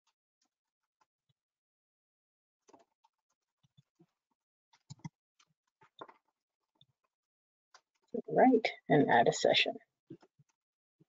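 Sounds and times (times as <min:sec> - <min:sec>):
mouse and keyboard clicks: 0:04.8 - 0:05.1.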